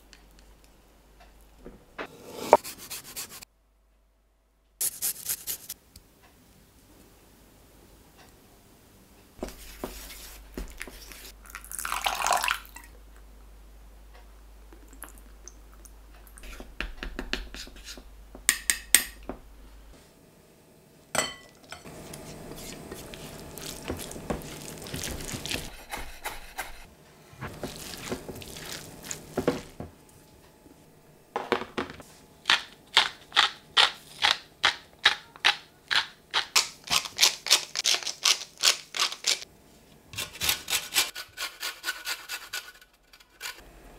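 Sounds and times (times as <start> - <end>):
spatula scraping a bowl: 2.0 - 3.4, 21.8 - 29.8
dressing stirred in a bowl: 21.3 - 30.3
rice mixed in a glass bowl: 21.9 - 26.8, 27.4 - 29.8
salt grinder grinding: 21.9 - 26.9.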